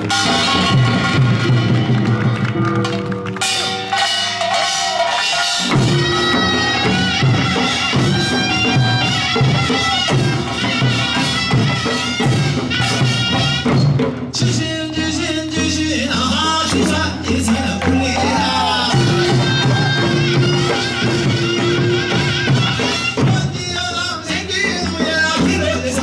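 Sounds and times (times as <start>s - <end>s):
hand gongs clanging: 0.0s - 2.1s, 3.4s - 10.6s
drums on a steady beat: 0.0s - 2.6s, 3.4s - 26.0s.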